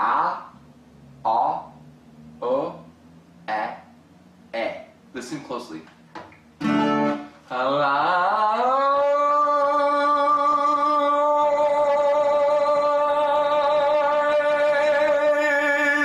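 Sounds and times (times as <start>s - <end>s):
man singing vowel notes: 6.7s - 16.0s.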